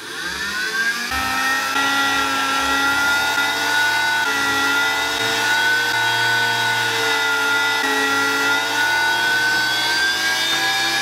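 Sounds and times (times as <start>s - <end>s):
rotary tool whining: 0.0s - 11.0s.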